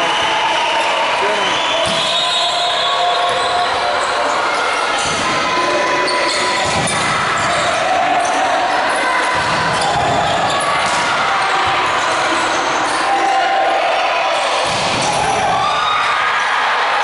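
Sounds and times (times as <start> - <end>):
players calling: 0.0 - 5.2.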